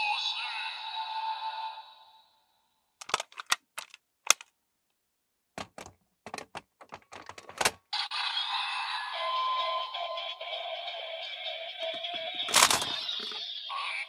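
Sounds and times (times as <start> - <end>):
plastic toy parts clicking: 3.0 - 4.5, 5.6 - 7.8, 11.9 - 13.4
electronic toy sound: 8.0 - 14.0.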